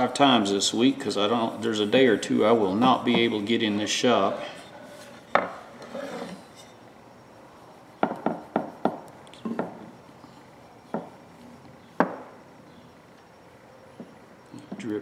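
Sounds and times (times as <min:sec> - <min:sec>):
hatchet tapping on a board: 0:08.0 - 0:09.0, 0:12.0 - 0:12.3.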